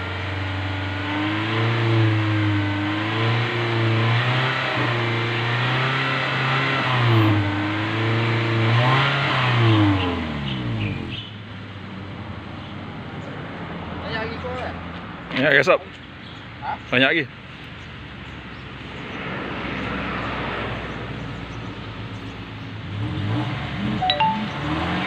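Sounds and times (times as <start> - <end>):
car engine revving: 0.0 - 11.3, 22.8 - 25.0.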